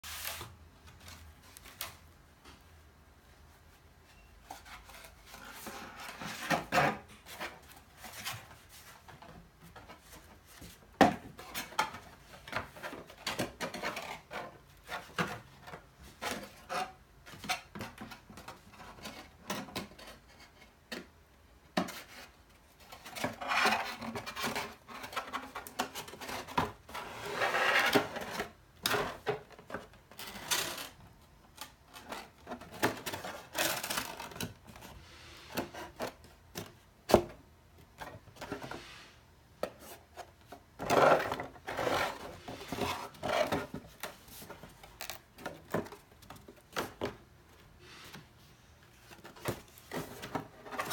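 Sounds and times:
cardboard scraping and rubbing: 0:00.0 - 0:00.5, 0:23.2 - 0:29.3, 0:38.1 - 0:47.0.

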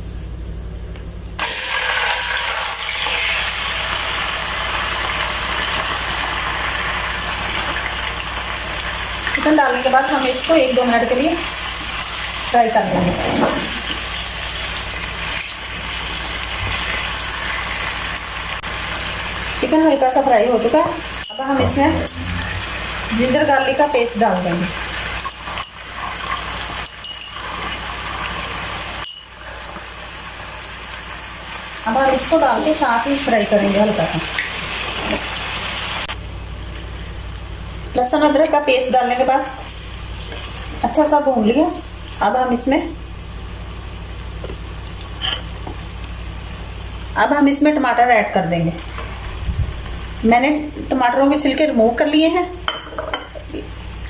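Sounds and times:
chicken sizzling in hot oil: 0:01.4 - 0:13.0, 0:13.6 - 0:36.2, 0:39.6 - 0:47.9.

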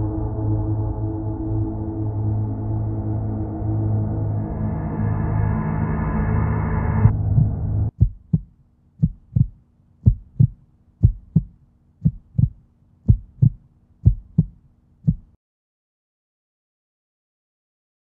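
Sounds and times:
heartbeat thumps: 0:07.0 - 0:15.4
faint steady hum: 0:07.1 - 0:15.3.

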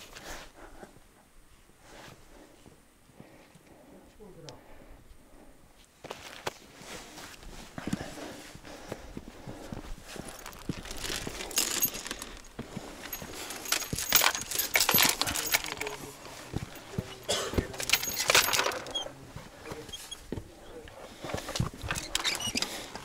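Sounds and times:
metallic clinking and scraping: 0:10.3 - 0:19.2.

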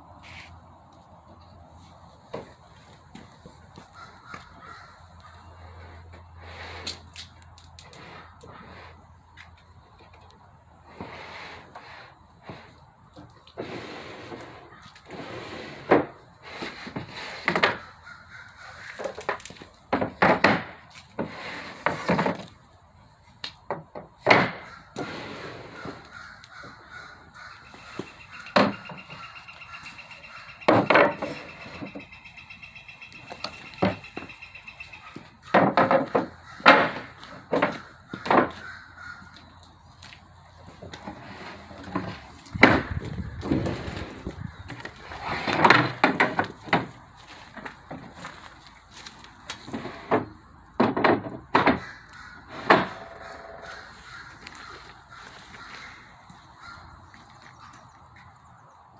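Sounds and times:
bird cawing: 0:03.8 - 0:05.6, 0:17.8 - 0:19.2, 0:25.7 - 0:35.6, 0:36.3 - 0:39.6, 0:51.7 - 0:57.9.

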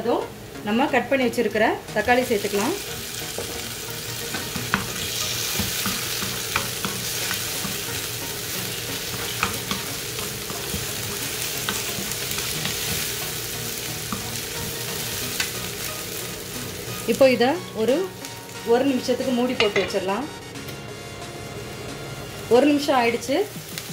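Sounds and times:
vegetables sizzling in oil: 0:00.0 - 0:23.9
spatula scraping a pan: 0:04.3 - 0:13.3.

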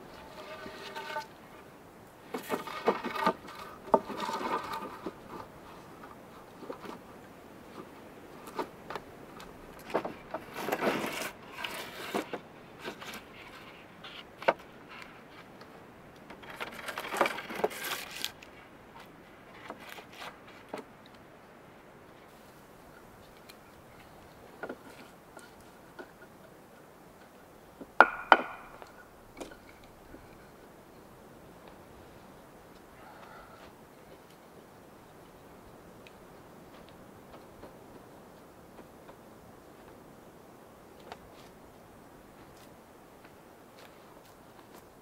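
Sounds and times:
wood knocking and scraping: 0:00.1 - 0:01.3, 0:02.3 - 0:07.0, 0:27.8 - 0:30.5.

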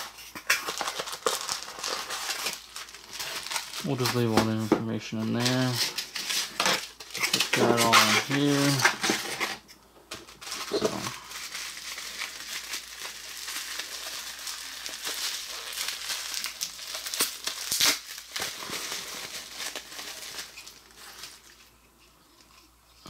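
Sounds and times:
bubble wrap crinkling: 0:00.0 - 0:09.6, 0:10.2 - 0:23.0
sharp crackle: 0:10.6 - 0:21.4.

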